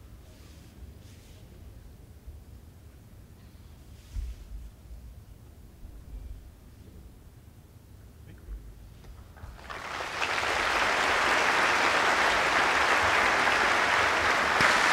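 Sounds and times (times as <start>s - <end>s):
audience applause: 9.4s - 14.9s.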